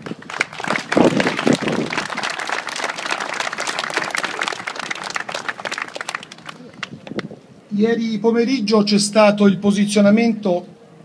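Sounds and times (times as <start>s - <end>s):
crowd applauding: 0.0s - 7.3s.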